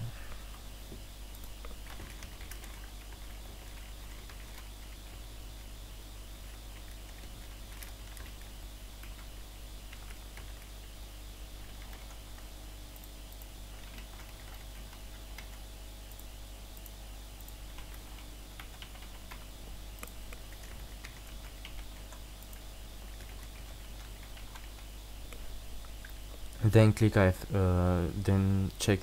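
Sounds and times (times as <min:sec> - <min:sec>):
steady low hum: 0:00.0 - 0:29.0
typing on computer keyboard: 0:01.4 - 0:05.1, 0:06.7 - 0:09.3, 0:09.9 - 0:10.7, 0:11.6 - 0:16.3, 0:17.4 - 0:19.4, 0:20.0 - 0:25.4.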